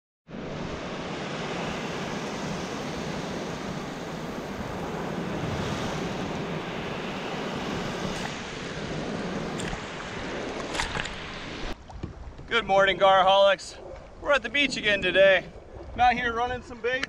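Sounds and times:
ocean waves breaking on sand: 0.3 - 11.8.

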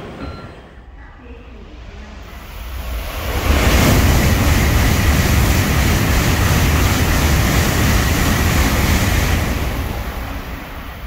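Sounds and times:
bullet train rushing past: 0.0 - 11.0.

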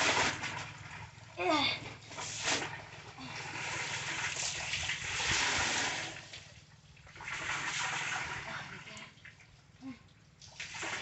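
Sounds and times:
water pouring into basin: 2.2 - 9.4.

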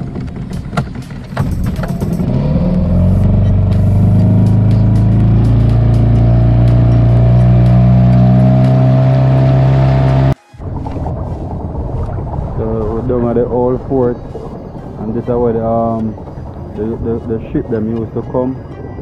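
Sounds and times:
small outboard motor running: 0.0 - 10.8.

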